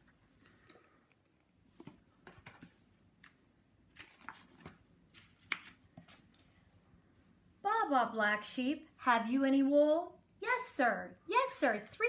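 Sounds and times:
paper pages turning: 0.0s - 6.5s.

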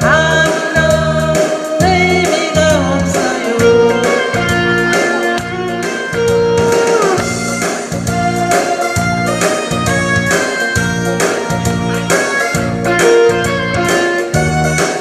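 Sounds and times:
woman singing: 0.0s - 5.4s
amplified backing track with beat: 0.0s - 15.0s.

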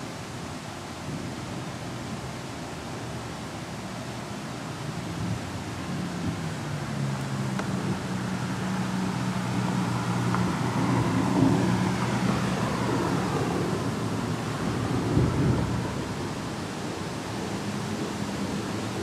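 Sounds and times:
rain hissing: 0.0s - 19.0s
thunder rumbling: 9.6s - 19.0s.

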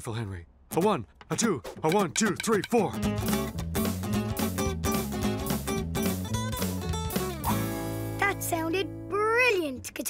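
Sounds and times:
upbeat band music: 1.9s - 8.6s.

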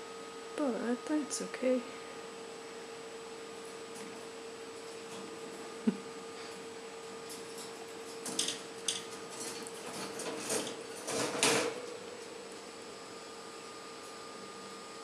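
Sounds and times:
faint steady hum: 0.0s - 15.0s
claws rattling on wire mesh: 7.2s - 11.8s.

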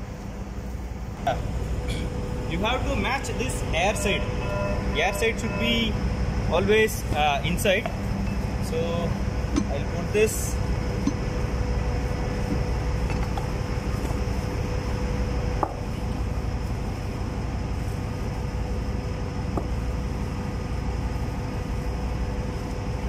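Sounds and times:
machinery hum: 0.0s - 23.0s.

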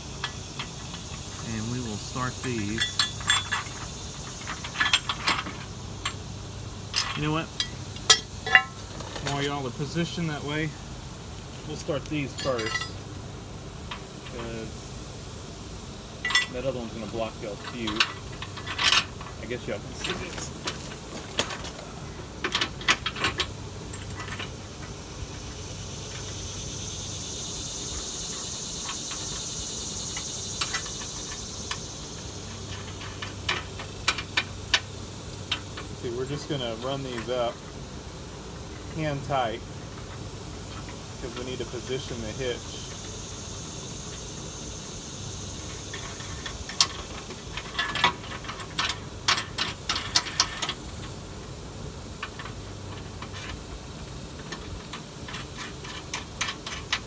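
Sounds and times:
steady hiss: 0.0s - 57.0s
metal hardware clicks and clinks: 0.2s - 6.2s, 6.9s - 10.2s, 12.2s - 13.0s, 16.2s - 21.8s, 45.7s - 50.8s
metal nuts clinking: 0.2s - 6.2s, 6.9s - 9.6s, 12.3s - 13.0s, 16.2s - 16.8s.

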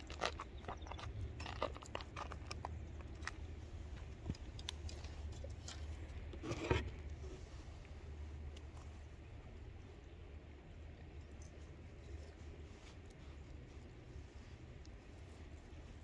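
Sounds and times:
low steady rumble: 0.0s - 16.0s
rustling: 11.1s - 16.0s.

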